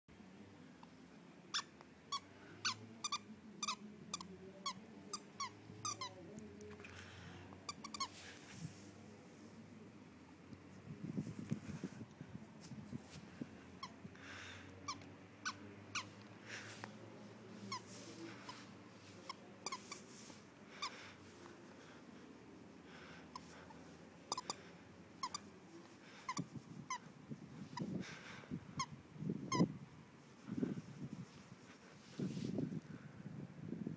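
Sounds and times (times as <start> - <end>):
dog toy squeaking: 1.5 - 6.2, 7.7 - 8.1, 14.9 - 16.1, 19.3 - 20.1, 24.3 - 24.6, 25.2 - 25.5.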